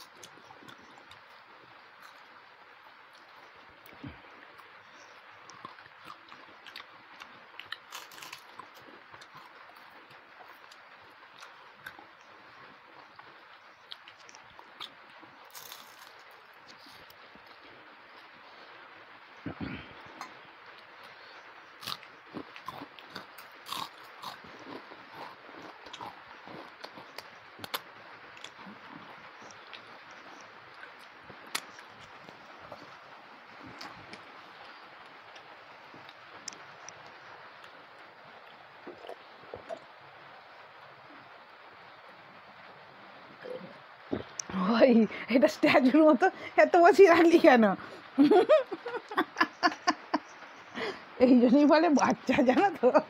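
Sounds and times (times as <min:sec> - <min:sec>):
chewing mouth sounds: 0:21.0 - 0:33.0.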